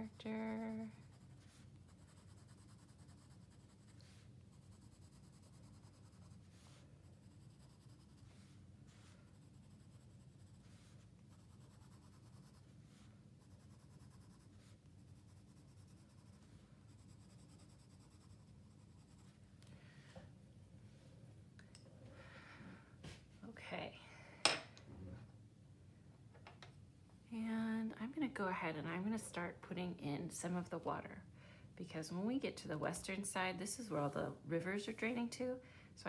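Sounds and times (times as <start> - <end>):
pencil scratching on paper: 0.0 - 19.4
low steady hum: 0.0 - 36.0.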